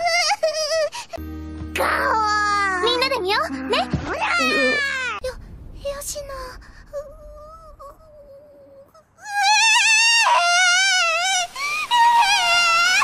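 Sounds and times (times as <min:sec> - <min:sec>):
girl whimpering and wailing: 0:01.8 - 0:03.0, 0:03.6 - 0:05.2.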